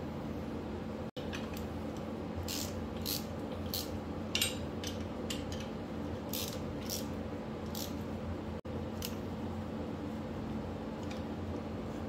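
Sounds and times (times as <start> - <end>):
hand ratchet clicking: 2.4 - 5.7.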